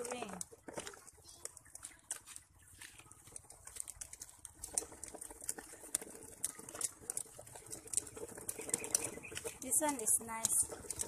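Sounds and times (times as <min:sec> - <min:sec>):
footsteps on dry grass and gravel: 0:00.2 - 0:11.0.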